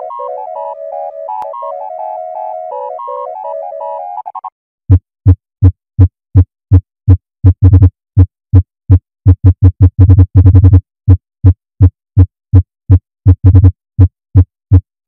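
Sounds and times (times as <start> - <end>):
low buzzing electronic beeps: 0.0 - 4.5
synthesizer melody: 0.0 - 4.5.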